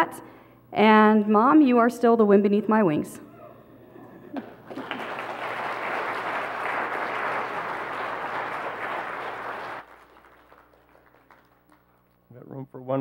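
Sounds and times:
crowd applauding: 4.4 - 12.2.

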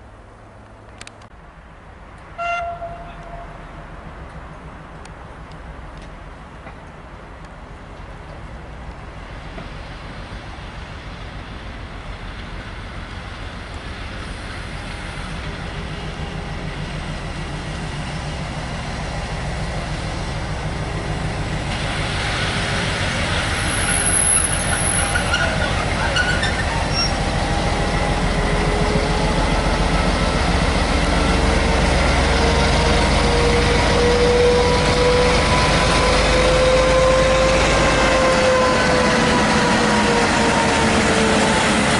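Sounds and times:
diesel locomotive engine rumble: 0.0 - 41.9
engine whine: 13.3 - 41.9
hiss and squeal: 21.8 - 27.4.

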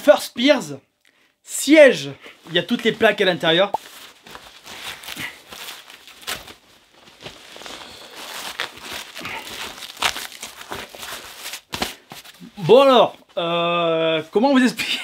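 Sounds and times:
nylon fabric and straps rustling: 2.4 - 13.0.

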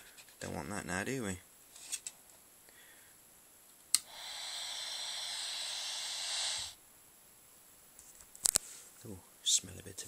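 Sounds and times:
electric arc snapping and hissing: 3.9 - 6.8.

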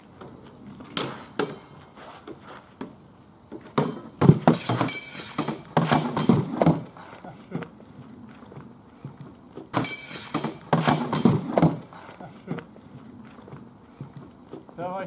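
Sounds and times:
shields knocking together: 3.8 - 6.9, 9.8 - 12.0
swords clattering on shields: 3.8 - 7.2, 9.8 - 12.0.

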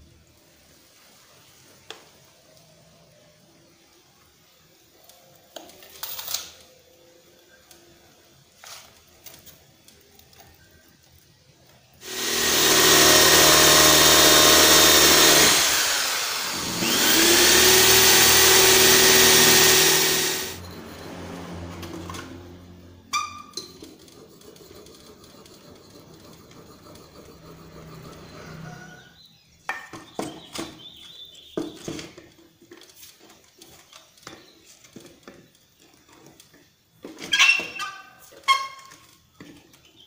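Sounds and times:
electric drill boring into wood: 12.0 - 20.6.

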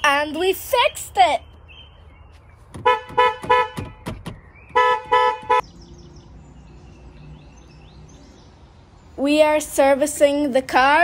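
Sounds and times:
car horn toots: 2.8 - 5.6.

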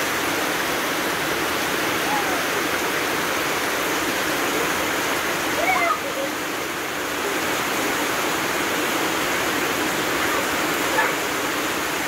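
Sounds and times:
heavy rain pouring: 0.0 - 12.0
water streaming off a roof: 0.0 - 12.0.

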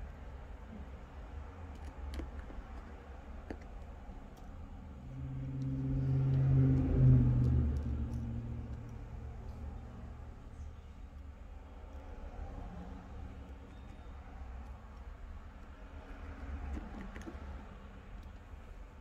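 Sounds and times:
low hum: 4.0 - 13.2.

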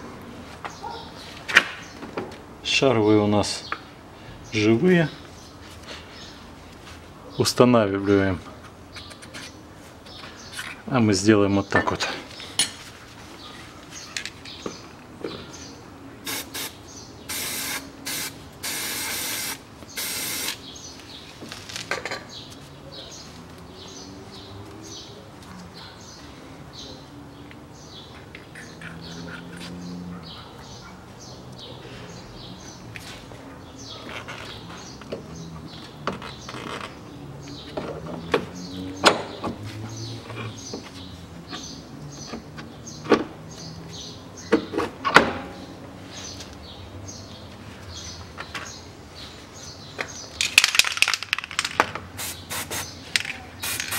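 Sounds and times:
birds chirping: 0.6 - 53.9
aerosol spray can hissing: 16.3 - 20.6, 52.2 - 53.0, 53.6 - 53.9.

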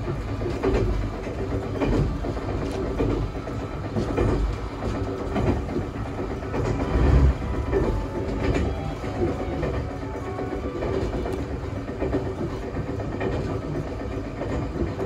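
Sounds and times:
clicks over rail joints: 0.0 - 15.0
train wheels rumbling on rail: 0.0 - 15.0.

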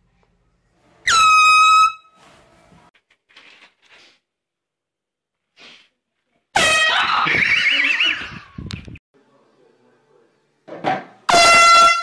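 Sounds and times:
air horn blast: 11.3 - 12.0.

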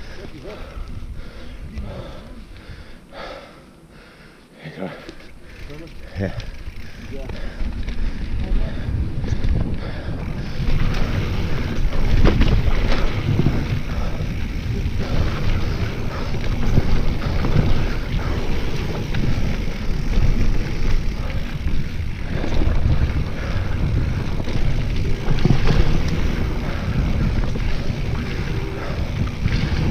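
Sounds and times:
tyres crunching on dirt trail: 4.6 - 29.9
bike clattering over bumps: 5.2 - 29.9
wind on microphone: 7.4 - 29.9.

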